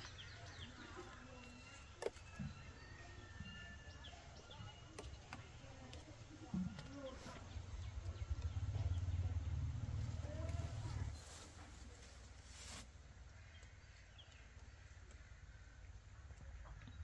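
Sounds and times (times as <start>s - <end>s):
low rumble: 6.4s - 11.8s.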